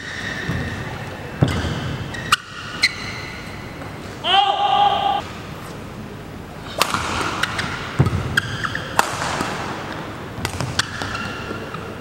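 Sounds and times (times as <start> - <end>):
court shoes squeaking on floor: 0.0 - 4.1, 7.2 - 9.1, 10.4 - 12.0
rackets striking shuttlecock: 6.7 - 11.8.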